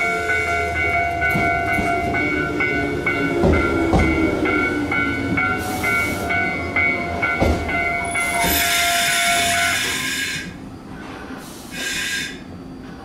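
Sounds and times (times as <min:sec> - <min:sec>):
air hiss: 0:11.3 - 0:12.4.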